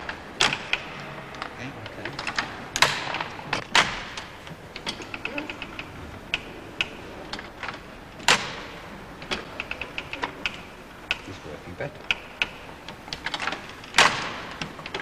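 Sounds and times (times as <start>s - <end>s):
loud knocks: 2.2s - 5.0s.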